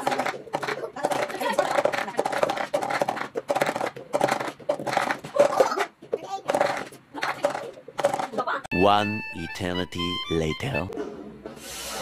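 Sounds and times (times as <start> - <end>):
plastic cups clacking on wooden table: 0.0 - 8.4.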